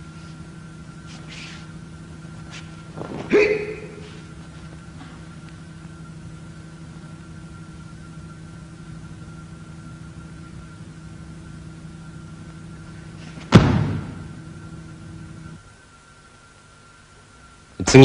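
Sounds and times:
steady electrical hum: 0.0 - 18.0
body thudding onto a mat: 2.5 - 3.5, 13.2 - 14.4.

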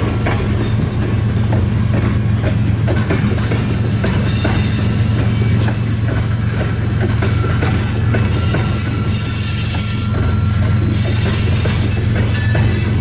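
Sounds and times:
train wheels clattering: 0.0 - 13.0
faint wheel squeal: 7.9 - 13.0.

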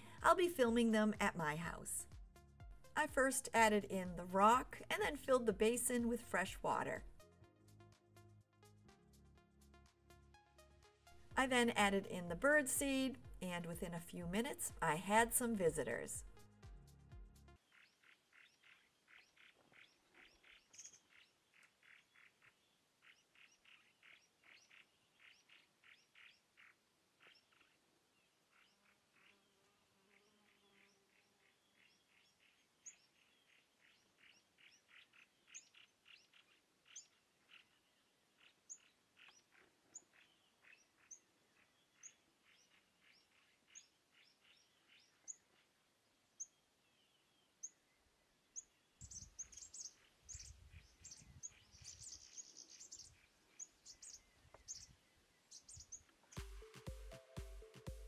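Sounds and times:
birds chirping: 17.6 - 27.8, 48.5 - 58.0.

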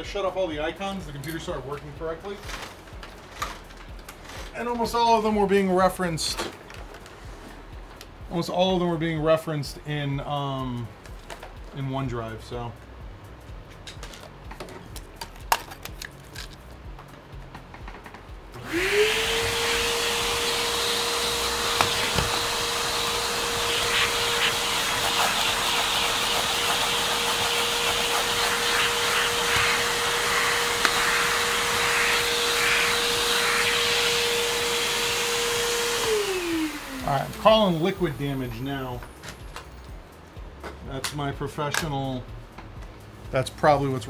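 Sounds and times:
vacuum cleaner motor hissing: 18.6 - 39.1.

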